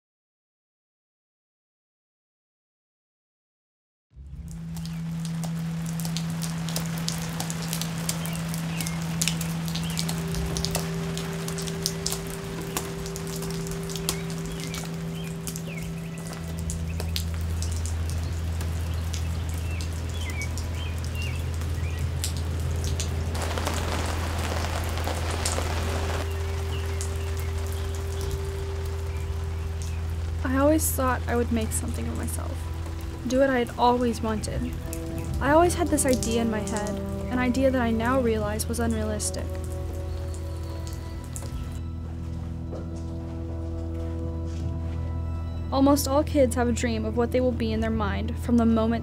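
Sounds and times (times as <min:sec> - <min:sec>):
rain pattering on wet pavement: 0:04.3 - 0:41.8.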